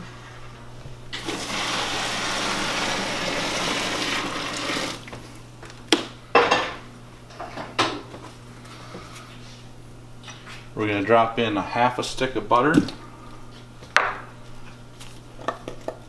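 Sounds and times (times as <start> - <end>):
water pouring and splashing: 1.2 - 5.1.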